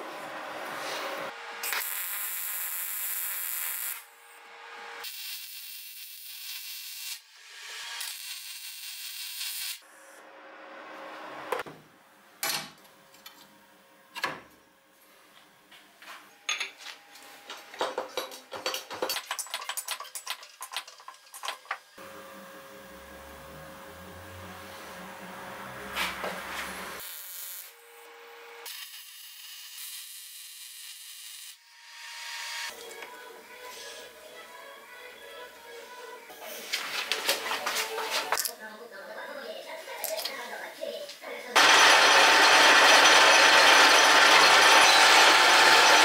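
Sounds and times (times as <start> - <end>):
welding arc crackling: 1.4 - 4.1, 5.0 - 7.2, 7.9 - 9.8, 26.8 - 27.7
metal parts clicking and knocking: 17.8 - 21.9.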